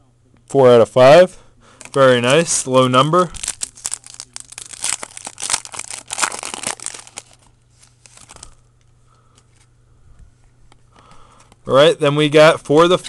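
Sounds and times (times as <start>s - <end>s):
foil wrapper crinkling: 1.8s - 8.6s.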